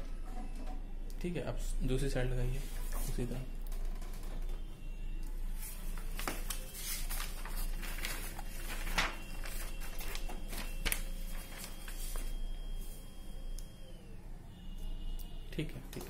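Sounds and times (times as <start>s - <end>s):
paper rustling: 5.6s - 12.4s
faint steady tone: 9.0s - 15.9s.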